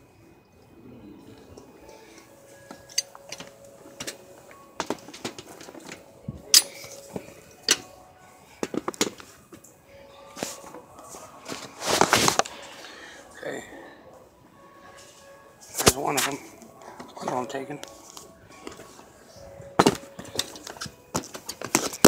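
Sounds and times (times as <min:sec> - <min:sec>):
clothing rustle: 0:10.3 - 0:12.8.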